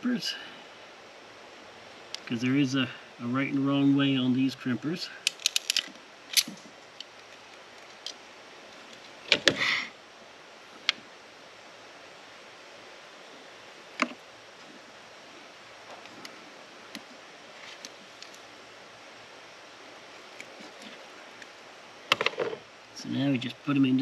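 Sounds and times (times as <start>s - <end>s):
plastic connectors rustling: 5.2s - 8.2s
wire crimpers clicking: 5.2s - 8.2s.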